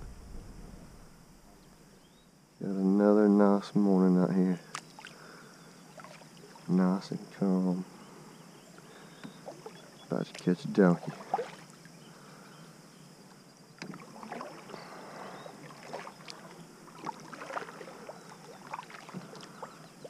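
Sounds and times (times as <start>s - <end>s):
paddle splashes and drips: 4.7s - 5.2s, 5.9s - 6.7s, 9.2s - 12.0s, 13.8s - 20.0s.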